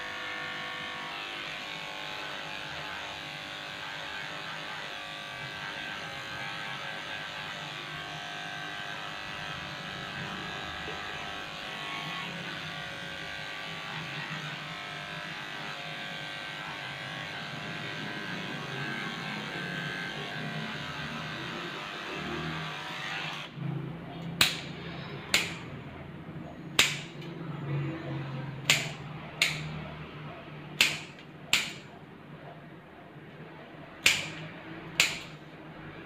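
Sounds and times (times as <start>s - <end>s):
electric pet clipper running: 0.0s - 23.6s, 24.4s - 25.7s, 28.6s - 29.8s.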